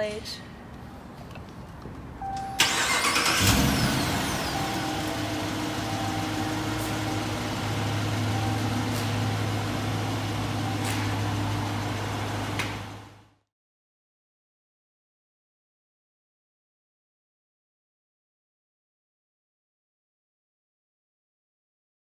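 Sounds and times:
car engine starting and idling: 2.2 - 13.4.

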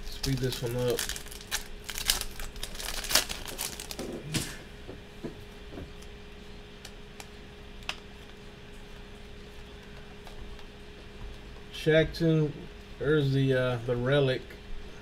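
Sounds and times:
foil wrapper crinkling: 0.0 - 4.2
steady low hum: 0.0 - 15.0.

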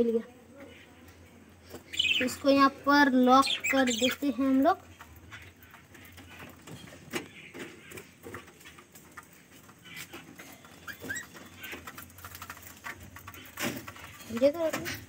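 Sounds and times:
budgerigars chirping: 1.7 - 2.6, 3.3 - 4.4, 9.8 - 12.4.

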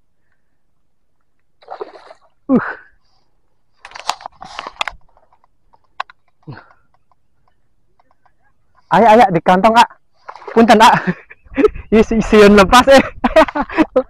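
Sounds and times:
fish thrashing water splashing: 1.6 - 2.3.

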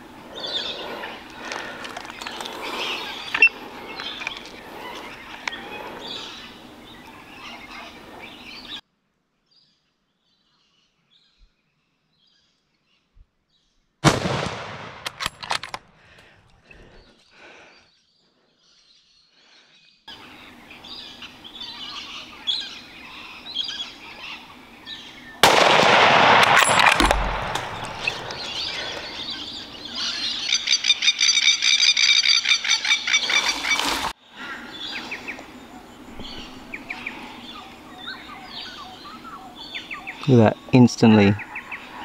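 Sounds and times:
small birds chirping: 0.0 - 8.8, 16.0 - 25.7, 27.3 - 42.0.

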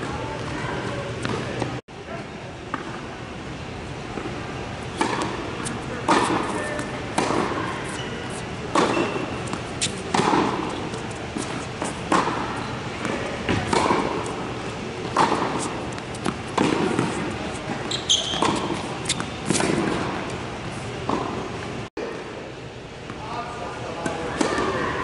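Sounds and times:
tennis ball bouncing: 1.2 - 1.7, 4.2 - 20.4, 21.0 - 21.4
racket hitting tennis ball: 4.9 - 20.4, 24.0 - 24.8
short high squeak: 17.8 - 19.4.

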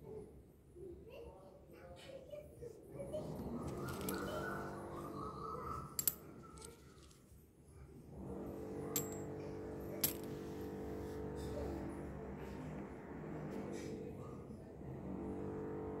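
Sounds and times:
coins clicking together: 9.0 - 9.3, 9.9 - 10.3.

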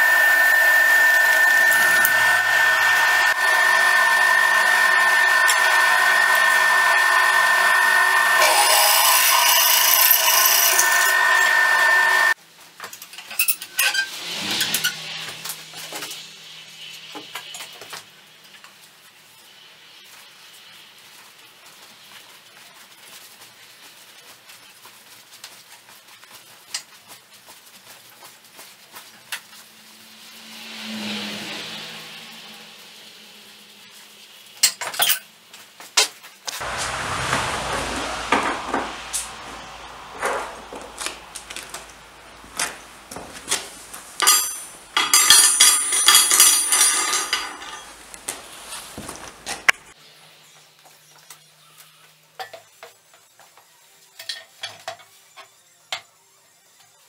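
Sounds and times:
hiss: 0.0 - 9.2, 36.6 - 42.4
low hum: 0.0 - 12.4, 36.6 - 45.0
steel blocks clattering on steel plate: 44.2 - 48.0.

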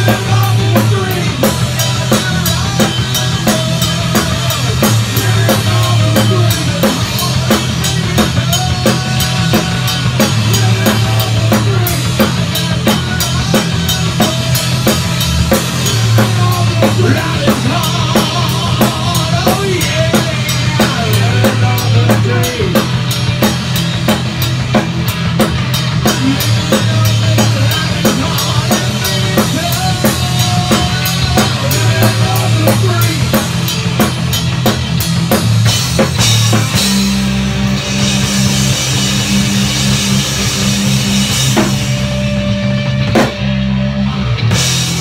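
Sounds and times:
man singing: 0.0 - 23.2, 26.0 - 34.1
heavy metal band playing: 0.0 - 45.0.

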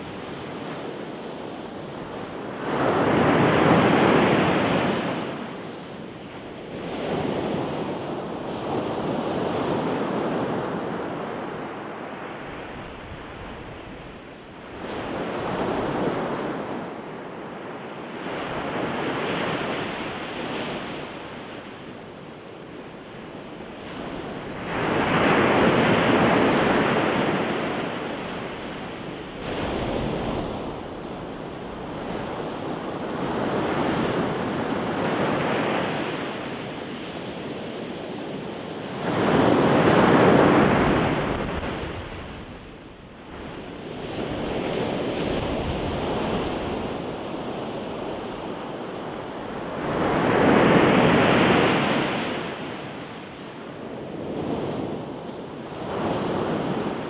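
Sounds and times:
ocean surf breaking: 49.1 - 53.3.

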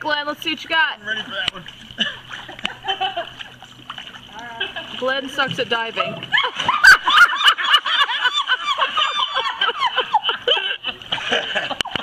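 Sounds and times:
people laughing: 1.8 - 3.7, 4.4 - 5.0, 6.3 - 12.0.

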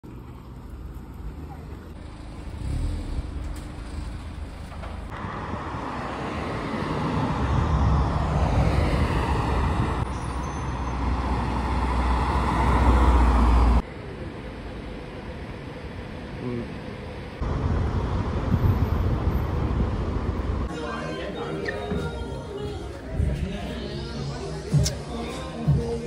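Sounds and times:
passing car engine and tyres: 0.0 - 20.7
city road traffic: 0.0 - 26.0.

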